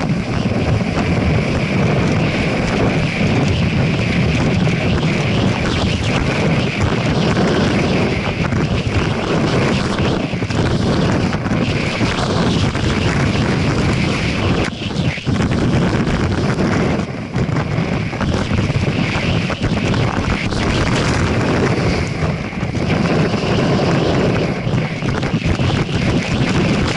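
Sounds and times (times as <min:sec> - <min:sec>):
wind rushing over microphone: 0:00.0 - 0:26.9.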